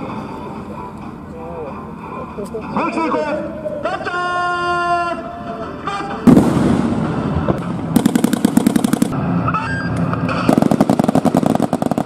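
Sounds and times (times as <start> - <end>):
loud blast: 6.2 - 9.3
automatic gunfire: 8.0 - 9.2, 10.5 - 12.0.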